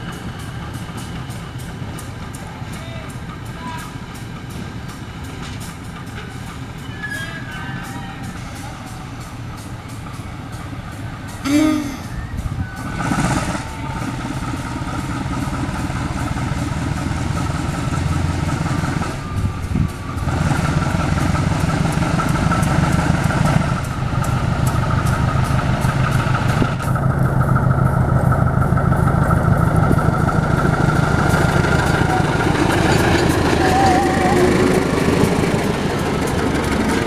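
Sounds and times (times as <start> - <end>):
diesel locomotive engine drone: 0.0 - 37.0.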